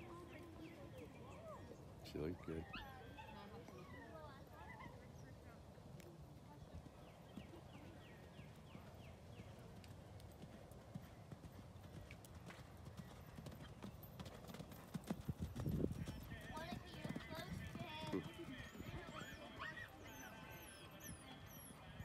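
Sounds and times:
horse hooves cantering on sand: 0:06.0 - 0:20.4.

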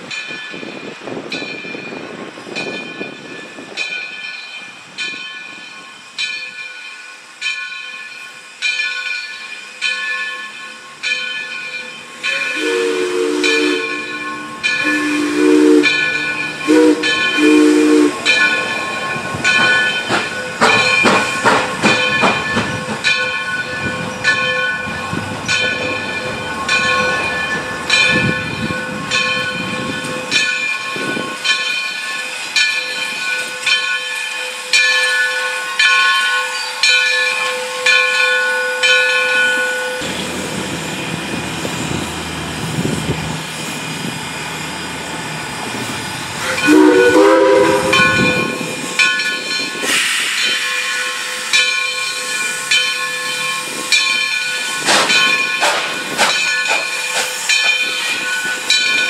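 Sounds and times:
steam locomotive whistle: 0:12.3 - 0:19.1, 0:46.4 - 0:49.0
bell ringing: 0:13.4 - 0:15.2, 0:15.8 - 0:21.4, 0:46.5 - 0:59.0
hiss of steam: 0:39.7 - 0:59.0.

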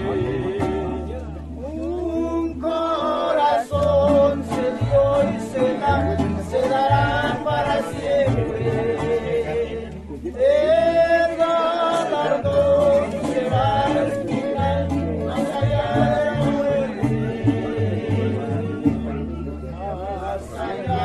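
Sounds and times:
mariachi band playing and singing: 0:00.0 - 0:21.0.

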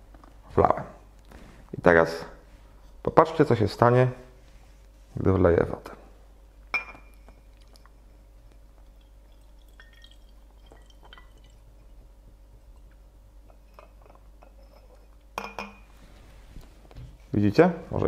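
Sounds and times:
glass clink: 0:06.7 - 0:07.5, 0:12.8 - 0:15.9
faint water drips: 0:07.1 - 0:13.0
water pouring: 0:08.8 - 0:12.0.

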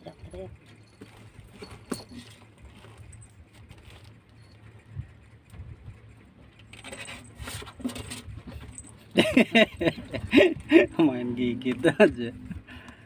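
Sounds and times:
steady low hum: 0:00.0 - 0:13.0
kittens scuffling on tiled floor: 0:00.9 - 0:04.4.

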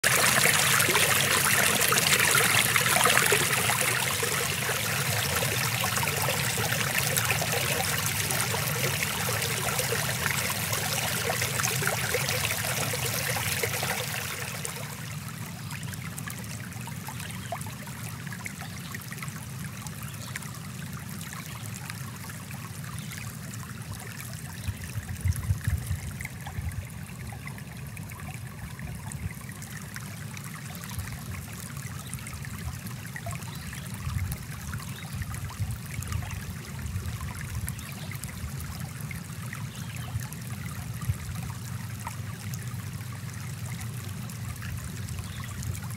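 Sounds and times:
stream water trickling over rocks: 0:00.0 - 0:45.9.

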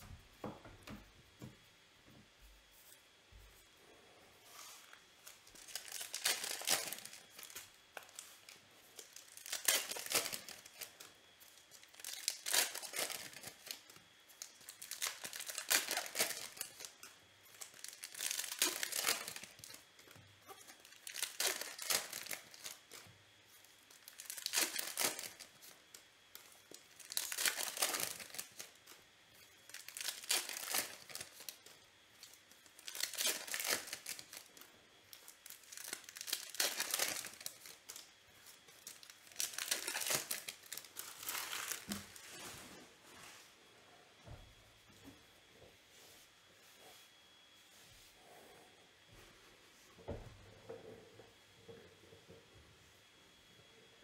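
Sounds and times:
foil packs tearing and crinkling: 0:05.3 - 0:23.0, 0:23.8 - 0:25.8, 0:26.7 - 0:29.0, 0:29.6 - 0:38.1, 0:38.7 - 0:42.3.

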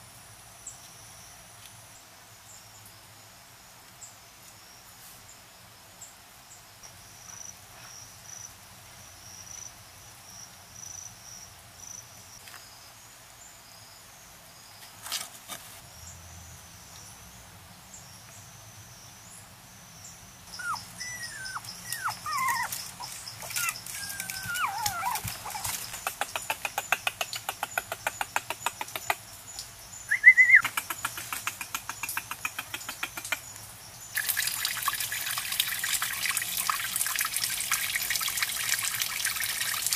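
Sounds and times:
faint high insect chirping: 0:00.0 - 0:15.2, 0:15.8 - 0:31.3, 0:32.0 - 0:37.0
puppies whining and yelping: 0:20.5 - 0:26.0.

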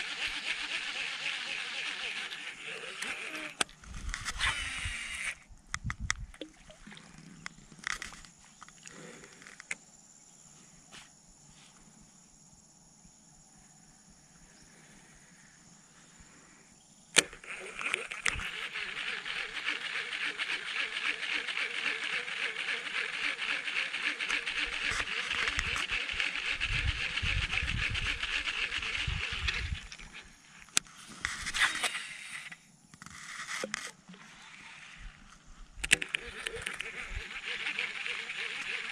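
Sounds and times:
fishing reel click: 0:00.0 - 0:06.2, 0:17.2 - 0:32.6, 0:35.8 - 0:38.9
fishing reel gear whir: 0:00.0 - 0:09.8, 0:17.2 - 0:38.9.

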